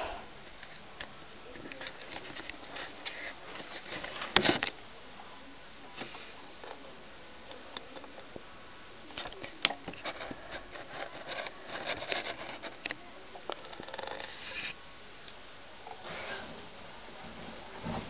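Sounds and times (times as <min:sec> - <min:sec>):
scratching and rustling on microphone: 0:00.4 - 0:04.7, 0:05.9 - 0:06.8, 0:09.2 - 0:13.0, 0:13.6 - 0:14.8
rubbing hiss: 0:14.2 - 0:14.8.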